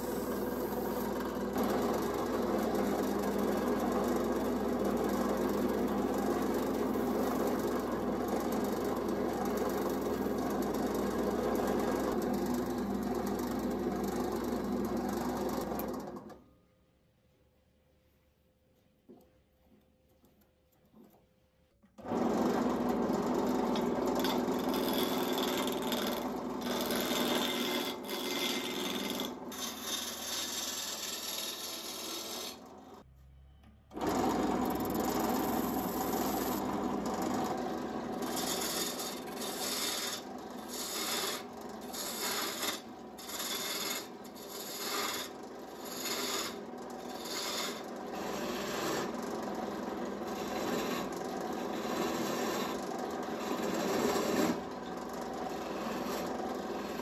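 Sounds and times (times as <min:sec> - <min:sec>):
abrasive rubbing on workpiece: 0:38.2 - 0:49.1.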